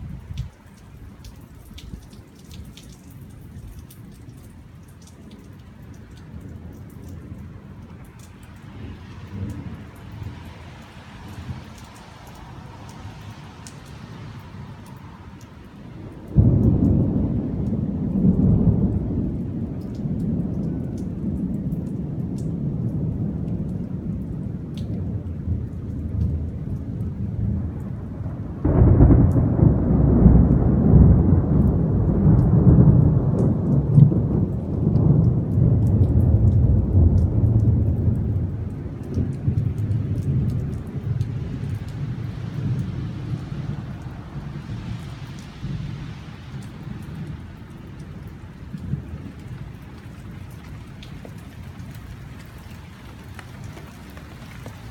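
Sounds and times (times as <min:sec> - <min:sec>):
thunder clap rumbling: 0:16.0 - 0:51.9.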